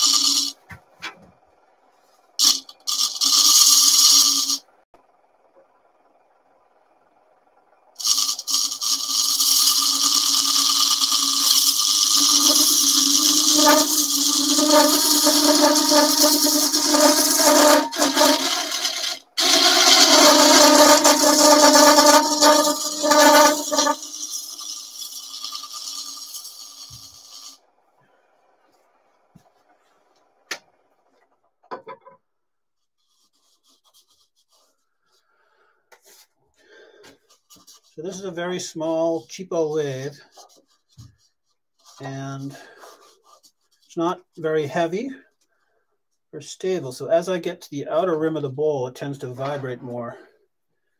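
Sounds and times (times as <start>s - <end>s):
gouge scraping spinning wood: 0.0s - 1.0s, 2.4s - 4.6s, 8.0s - 27.6s, 37.3s - 38.6s, 39.9s - 41.1s
lathe low hum: 5.1s - 26.4s
hands rubbing wooden bowl: 8.0s - 27.6s, 37.3s - 38.3s, 40.3s - 43.9s.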